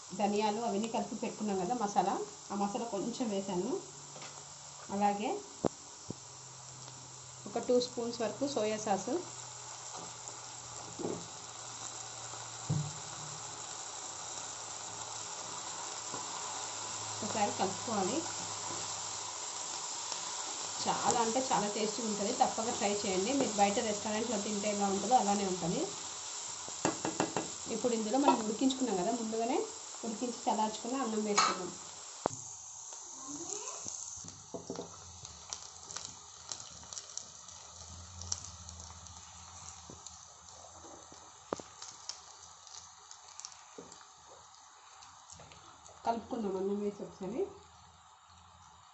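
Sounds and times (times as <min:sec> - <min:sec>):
vegetables sizzling in hot oil: 0:00.0 - 0:48.9
rice clicking and tapping in pan: 0:15.4 - 0:16.5, 0:26.8 - 0:28.8, 0:34.4 - 0:46.0.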